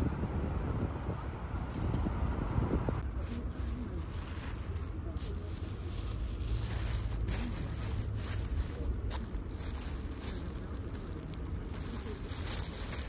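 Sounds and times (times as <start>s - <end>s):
wind rumbling on microphone: 0.0s - 13.0s
plastic bag crinkling: 3.1s - 13.0s.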